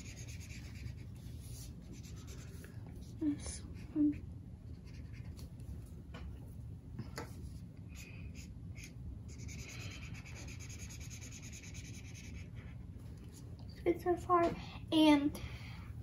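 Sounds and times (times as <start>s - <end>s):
marker scribbling on paper: 0.0s - 2.6s, 3.8s - 5.4s, 8.0s - 12.7s.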